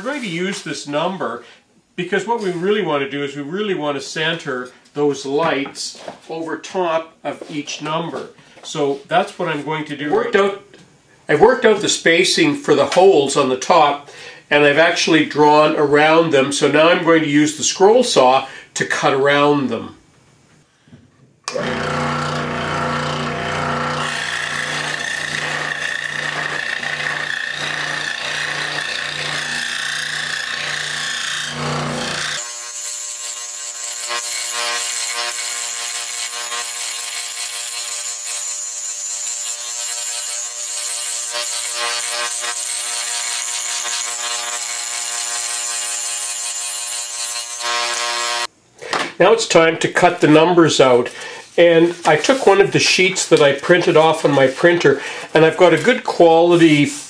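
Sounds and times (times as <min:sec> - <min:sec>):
scroll saw buzzing: 0:21.5 - 0:48.5.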